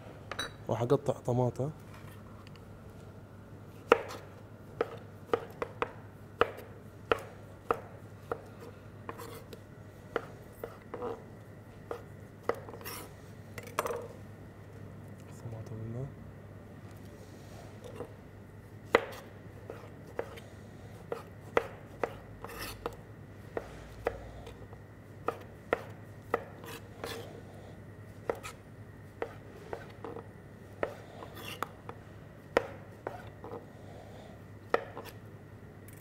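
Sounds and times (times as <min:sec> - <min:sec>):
knife chopping on cutting board: 0:03.8 - 0:08.5, 0:18.9 - 0:20.4, 0:21.1 - 0:23.0, 0:25.2 - 0:27.2, 0:28.2 - 0:28.6, 0:29.2 - 0:30.2, 0:30.8 - 0:31.7, 0:32.5 - 0:33.6, 0:34.7 - 0:35.2.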